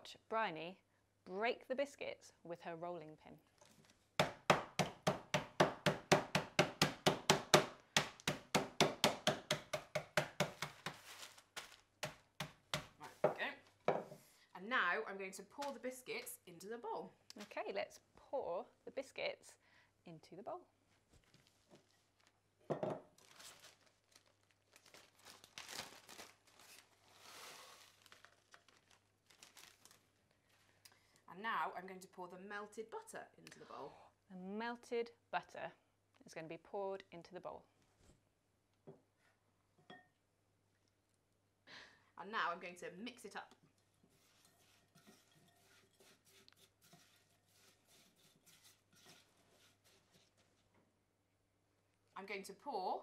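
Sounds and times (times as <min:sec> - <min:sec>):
plastic bag crinkling: 0:10.6 - 0:12.0, 0:23.1 - 0:30.7
spatula scraping in a bowl: 0:44.1 - 0:50.4.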